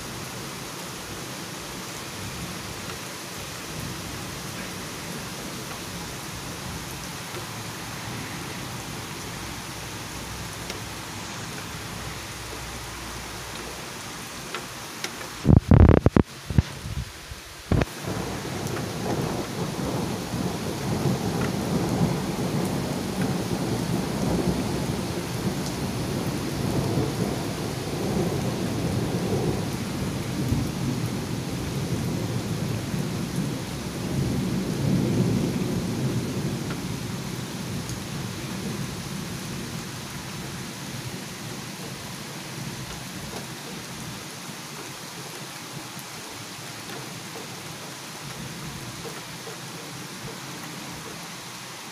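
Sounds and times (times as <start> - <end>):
rain hissing: 0.0 - 51.9
thunder rumbling: 17.7 - 42.0.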